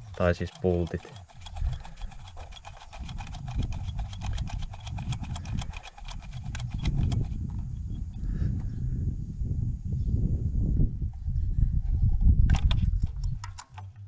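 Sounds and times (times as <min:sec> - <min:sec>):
fast light clicks: 0:00.0 - 0:07.7.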